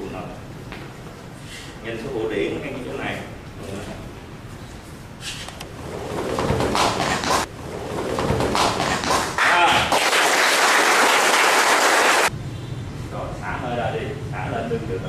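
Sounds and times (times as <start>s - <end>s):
group applauding: 8.4s - 12.3s.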